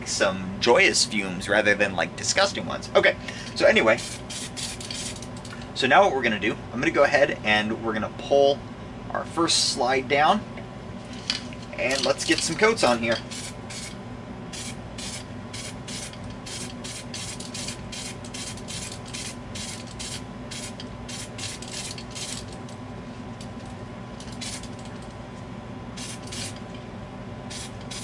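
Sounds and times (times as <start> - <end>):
aerosol spray can hissing: 26.0 - 26.6.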